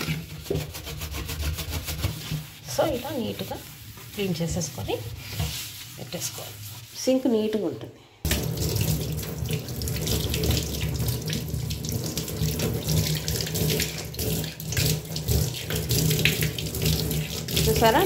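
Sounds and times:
tap water splashing into sink: 8.3s - 18.0s.

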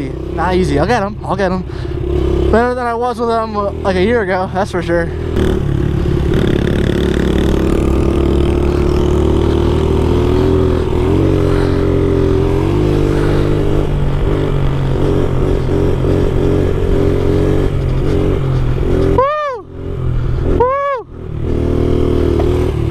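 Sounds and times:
small motorbike engine revving: 5.1s - 22.9s.

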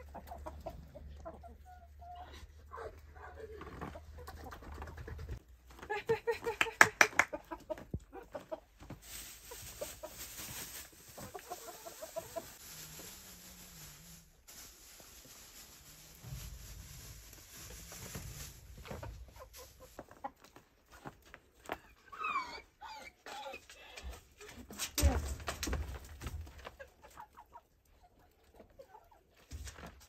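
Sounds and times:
chickens clucking: 0.0s - 5.4s, 7.2s - 12.8s, 18.9s - 21.1s, 26.5s - 29.5s.

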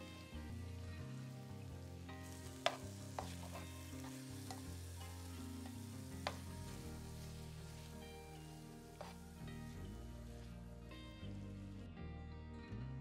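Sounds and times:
food sizzling in a pan: 0.0s - 11.7s
soft background music: 0.0s - 13.0s.

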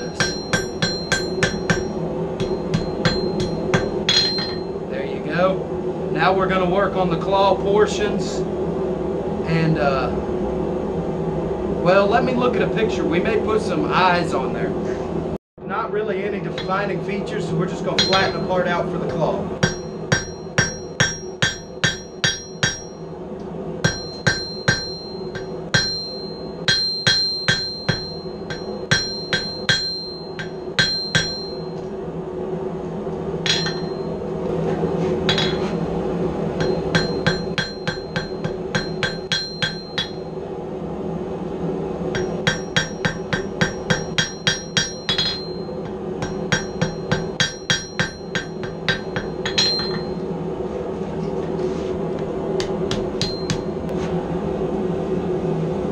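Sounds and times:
hammer striking ringing anvil: 0.0s - 4.8s, 16.5s - 16.9s, 17.9s - 23.1s, 23.8s - 31.9s, 33.4s - 34.2s, 35.3s - 35.8s, 36.6s - 40.3s, 42.1s - 50.2s, 52.6s - 53.8s
steady hum: 0.0s - 55.9s.

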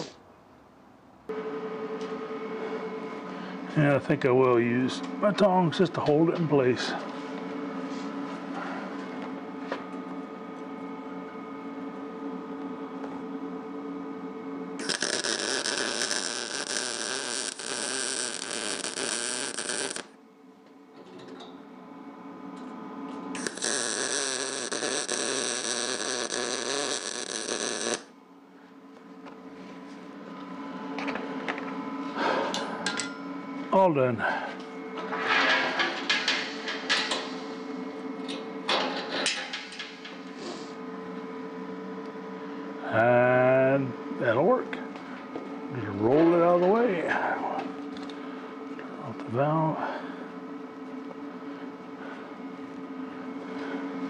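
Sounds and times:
steady hum: 0.0s - 54.0s
welding arc sizzling: 14.8s - 20.2s, 23.3s - 28.2s.

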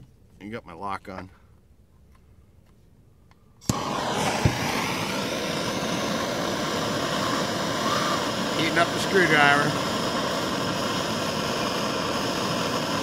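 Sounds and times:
gas torch flame hissing: 3.6s - 13.0s
gas torch ignition click: 3.6s - 13.0s.

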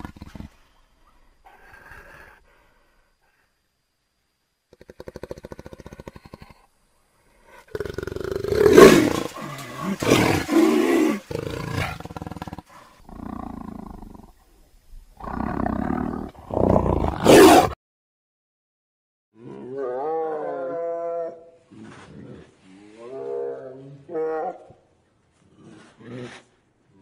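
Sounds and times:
big cat growling: 7.5s - 14.4s, 15.2s - 17.8s
big cat roaring: 7.7s - 14.3s, 15.2s - 17.8s.

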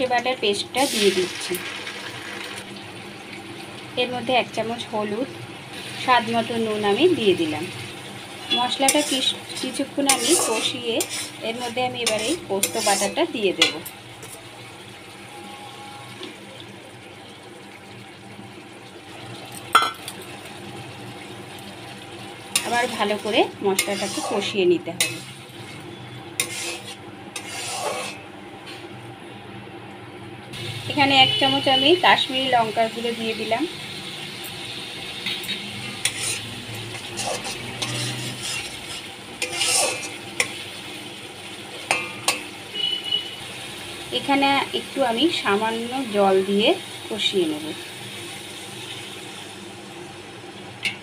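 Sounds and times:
spice paste sizzling in hot oil: 0.0s - 16.2s, 19.4s - 28.3s, 30.6s - 50.6s
metal spatula clanking on wok: 8.8s - 11.3s, 12.0s - 14.0s, 25.0s - 25.3s, 35.2s - 40.6s, 41.8s - 42.5s.

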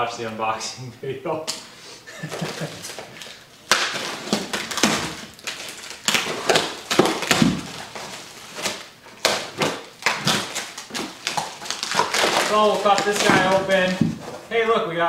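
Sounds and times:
plastic wrapping crinkling: 1.6s - 14.8s.

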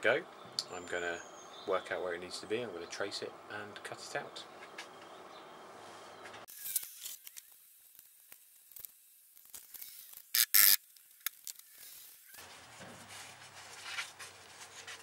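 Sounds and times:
loud hissing rustles: 5.8s - 15.0s
rustling: 5.8s - 15.0s.

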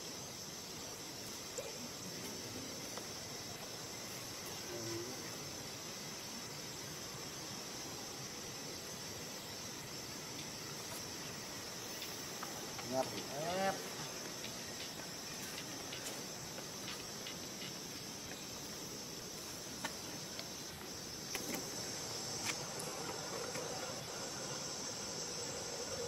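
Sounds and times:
insects chorus: 0.0s - 26.0s
faint ticks: 14.3s - 16.2s.

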